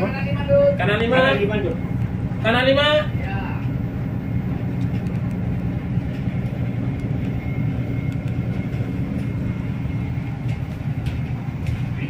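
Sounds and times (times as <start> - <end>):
ship engine humming: 0.0 - 12.0.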